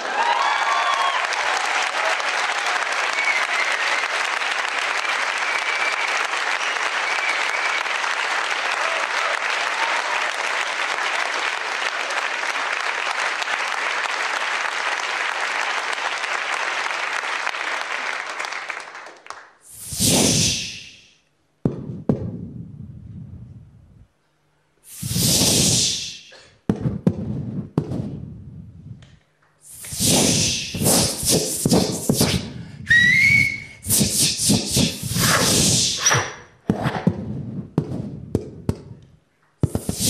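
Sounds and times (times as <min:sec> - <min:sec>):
audience applauding: 0:00.0 - 0:19.6
loud whooshes: 0:24.9 - 0:26.2, 0:29.7 - 0:32.6.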